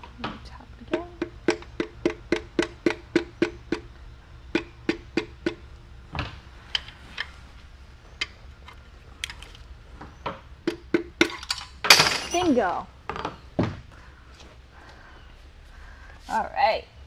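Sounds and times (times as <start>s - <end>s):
hammer tapping on metal bolt: 0.9s - 3.9s, 4.5s - 5.6s.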